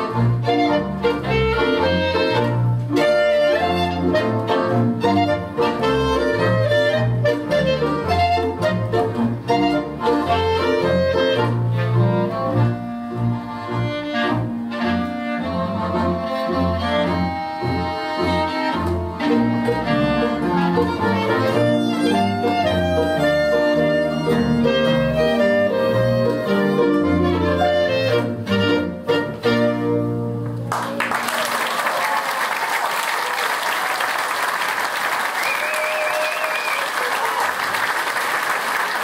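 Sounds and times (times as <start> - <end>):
violin: 0.0 - 30.6
double bass: 0.0 - 31.0
clarinet: 0.0 - 39.0.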